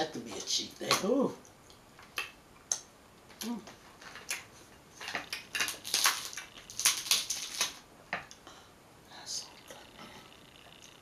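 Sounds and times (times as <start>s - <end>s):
person humming: 3.4s - 3.7s
crab shells cracking: 3.4s - 7.8s.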